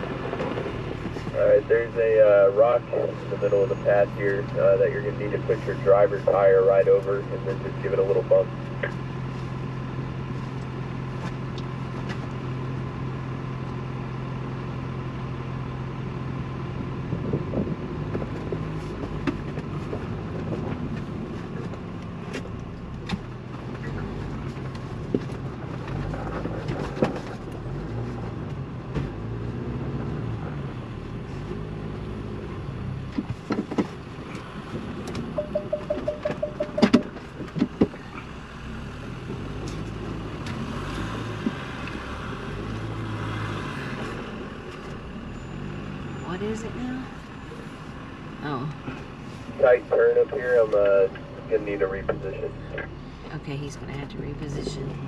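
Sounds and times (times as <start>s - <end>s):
vehicle engine running: 0.0s - 55.0s
rapid beeps: 35.4s - 37.1s
scattered knocks: 35.4s - 37.9s.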